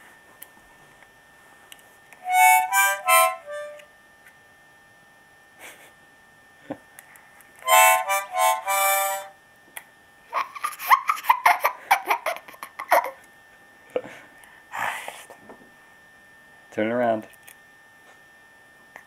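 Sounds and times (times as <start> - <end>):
toy harmonica chords: 2.2 - 3.9, 7.6 - 9.4
toddler giggling: 10.3 - 13.2.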